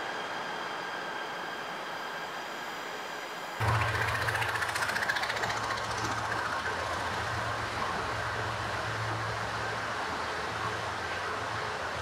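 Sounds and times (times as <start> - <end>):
train rumbling and rushing: 0.0 - 12.0
low even hum: 3.6 - 12.0.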